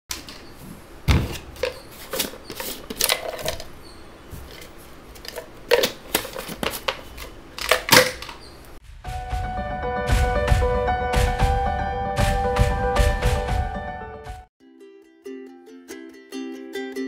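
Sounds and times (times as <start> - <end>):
plastic tub lid opening: 1.1 - 3.7, 4.3 - 8.5.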